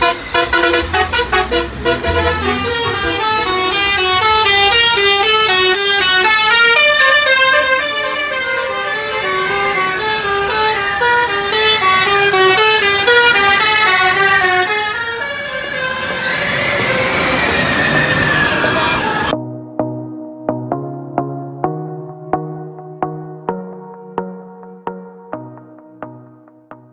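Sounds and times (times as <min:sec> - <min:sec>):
bus engines running: 0:00.0 - 0:19.4
musical bus horn: 0:00.0 - 0:19.4.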